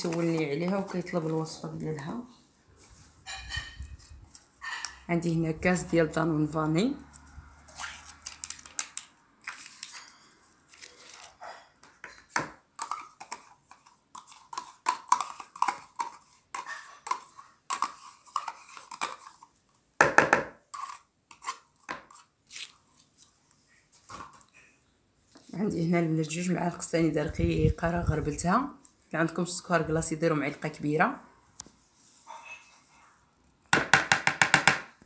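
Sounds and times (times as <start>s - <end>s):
spoon scraping plastic cup: 0.0s - 1.6s, 7.1s - 19.6s, 20.6s - 22.8s
spoon knocking on plastic: 20.0s - 20.6s, 33.7s - 35.0s.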